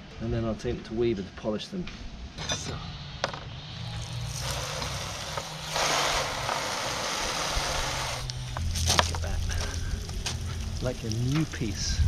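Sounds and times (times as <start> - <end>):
hose spraying water on metal: 3.8 - 11.8
low steady hum: 7.4 - 12.0.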